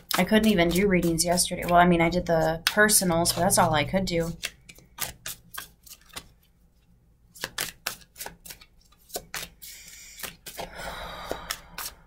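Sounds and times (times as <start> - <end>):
cards slapping while shuffled: 4.2 - 6.5, 7.3 - 12.0
cards sliding together: 4.4 - 6.3, 7.4 - 12.0.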